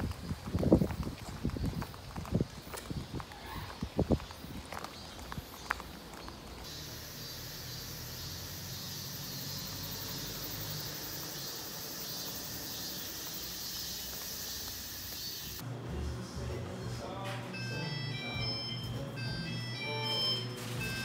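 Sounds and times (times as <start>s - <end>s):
cicadas droning: 0.0s - 15.6s.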